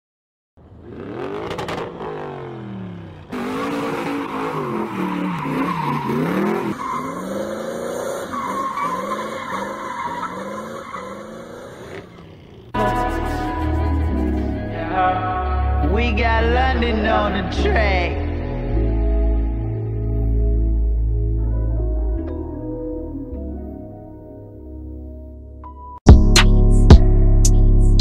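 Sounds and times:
car engine revving: 0.6s - 14.7s
tyre squeal: 3.4s - 12.4s.

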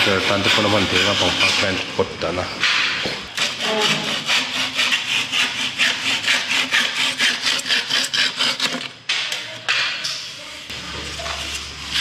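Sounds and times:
hand sawing wood: 0.0s - 1.9s, 3.4s - 8.9s.

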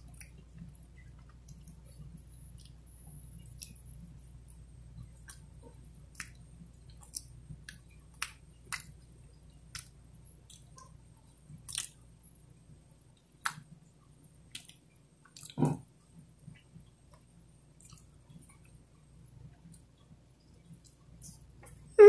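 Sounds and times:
person chewing food: 0.0s - 12.1s, 14.4s - 15.9s, 16.5s - 18.8s
mouth clicks and smacks: 6.1s - 9.0s, 9.7s - 11.0s, 14.5s - 15.8s.

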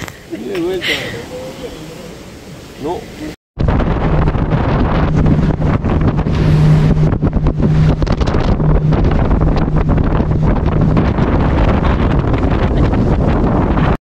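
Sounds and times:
motorboat engine hum: 3.6s - 14.0s
wind buffeting microphone: 3.6s - 14.0s.

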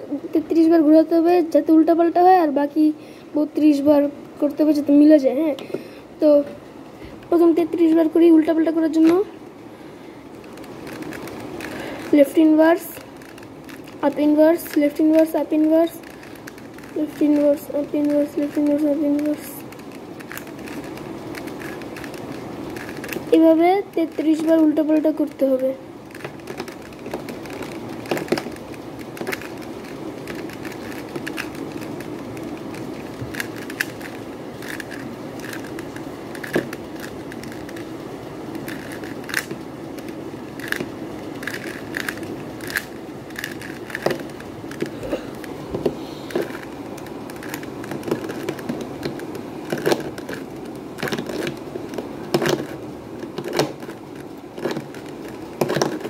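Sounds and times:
steady background noise: 0.0s - 56.0s
puzzle cube layers clicking: 10.4s - 25.4s, 26.1s - 56.0s.

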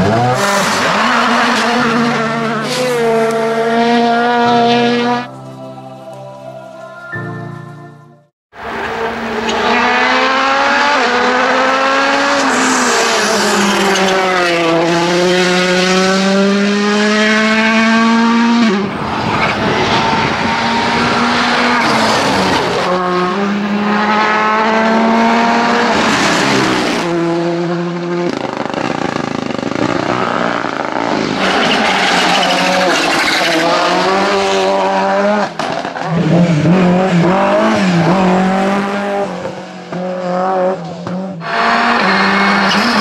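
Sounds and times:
rally car engines revving hard: 0.0s - 5.2s, 8.6s - 43.0s.

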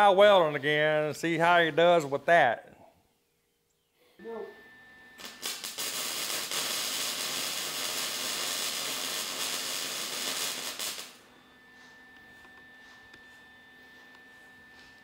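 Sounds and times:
welding arc crackling and hissing: 5.2s - 11.2s.

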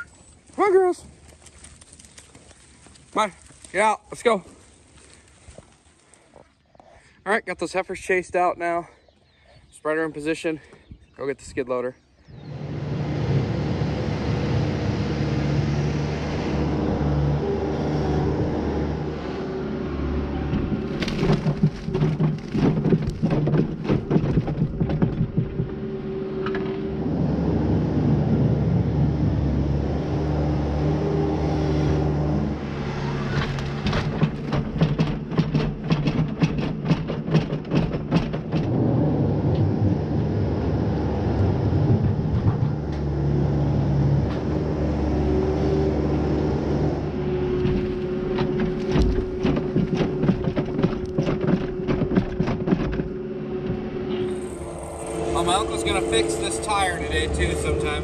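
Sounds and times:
diesel engine under load: 12.2s - 58.0s
bucket scraping on concrete: 20.4s - 26.6s, 47.5s - 58.0s.

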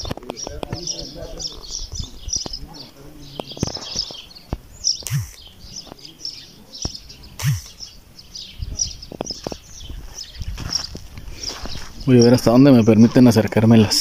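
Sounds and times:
small birds chirping: 0.0s - 14.0s
footsteps on dirt: 3.3s - 6.2s, 9.0s - 13.6s.

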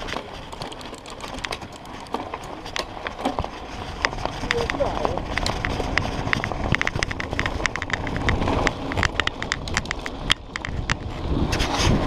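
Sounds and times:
bike clicking and rattling: 0.0s - 12.0s
bike tyres rumbling on dirt: 0.0s - 12.0s.

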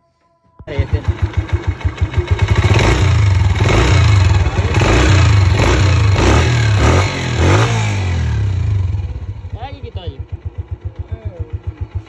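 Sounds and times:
motorcycle engine revving: 0.7s - 12.0s.

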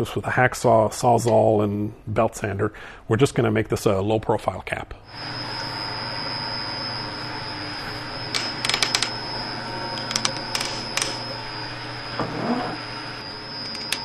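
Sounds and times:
steady hum: 5.0s - 14.0s.

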